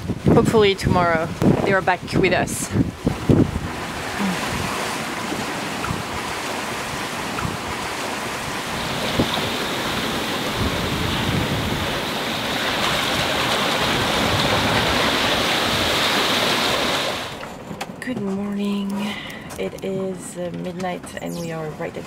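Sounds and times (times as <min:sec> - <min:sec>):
rushing seawater: 0:00.0 - 0:17.6
wind buffeting microphone: 0:00.0 - 0:22.0.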